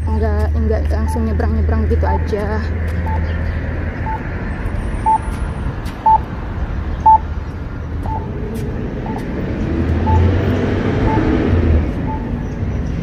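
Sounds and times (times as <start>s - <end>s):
street traffic rumble: 0.0s - 13.0s
crossing signal beeping: 0.9s - 2.2s, 3.0s - 3.4s, 4.0s - 5.4s, 6.0s - 6.3s, 7.0s - 7.3s, 8.0s - 8.4s, 9.0s - 13.0s.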